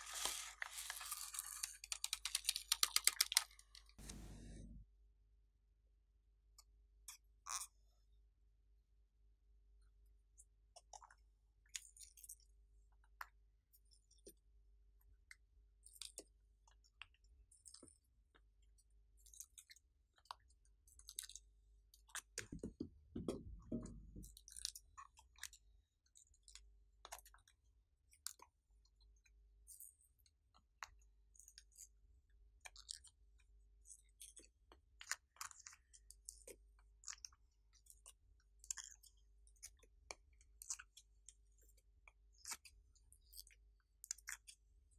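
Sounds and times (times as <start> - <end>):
small clicks and crinkles: 0.0 - 4.4, 32.6 - 44.9.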